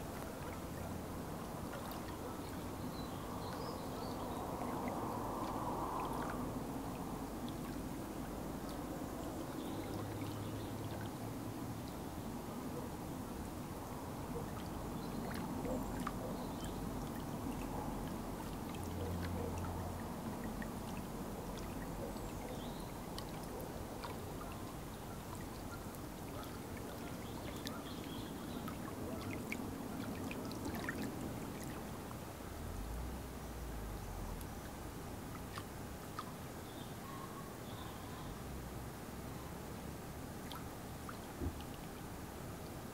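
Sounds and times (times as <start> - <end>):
small waves lapping on rocks: 14.4 - 32.4.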